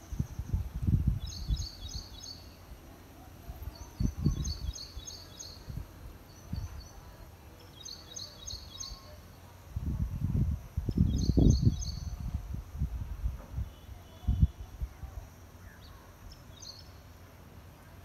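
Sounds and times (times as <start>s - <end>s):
wind gusts on microphone: 0.0s - 2.8s, 3.4s - 7.4s, 9.6s - 15.4s
songbird chirping: 0.0s - 12.5s, 13.6s - 18.0s.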